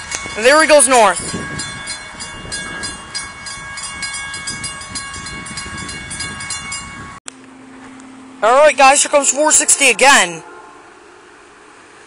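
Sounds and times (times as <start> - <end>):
crossing bell ringing rapidly: 0.0 - 7.2, 8.8 - 10.9.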